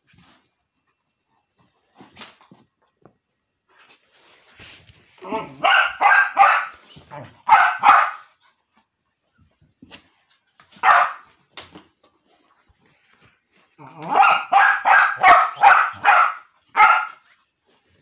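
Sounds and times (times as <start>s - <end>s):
dog barking: 5.5s - 8.3s, 10.8s - 11.3s, 14.0s - 17.3s.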